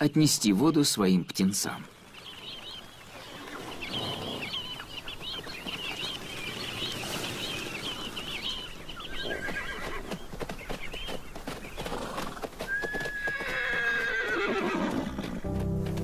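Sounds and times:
sandgrouse flock calling: 2.1s - 10.9s
horse whinnying: 9.2s - 10.2s, 12.0s - 15.4s.

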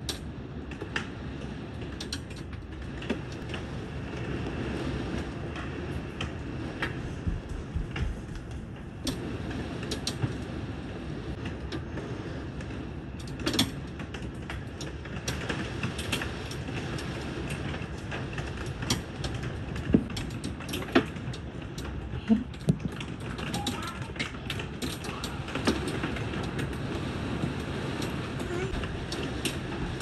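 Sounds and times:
hailstones cracking on wood: 13.2s - 30.0s
heavy rain downpour hiss: 15.2s - 30.0s.

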